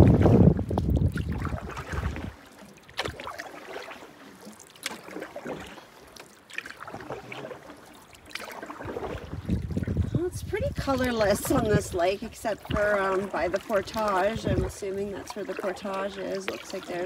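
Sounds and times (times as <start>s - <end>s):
wind rumble on microphone: 0.0s - 2.4s, 8.8s - 15.2s
paddle splashing in water: 0.0s - 17.0s.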